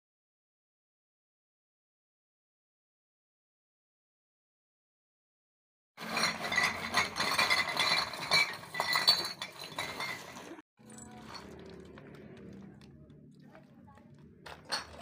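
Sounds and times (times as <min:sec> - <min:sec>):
bottles clattering on concrete: 0:06.0 - 0:12.9, 0:14.4 - 0:15.0
faint outdoor background: 0:06.0 - 0:15.0.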